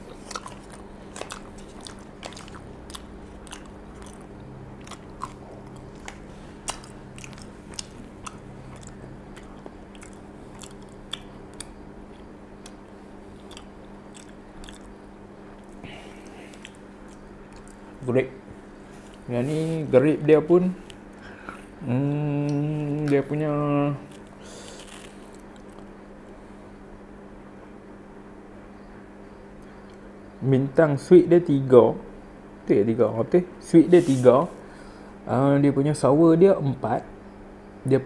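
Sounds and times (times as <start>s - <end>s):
man chewing food: 0.0s - 18.0s, 22.4s - 26.4s
steady low hum: 0.0s - 38.0s
small mouth clicks: 0.1s - 15.0s, 15.6s - 17.9s, 24.1s - 25.9s.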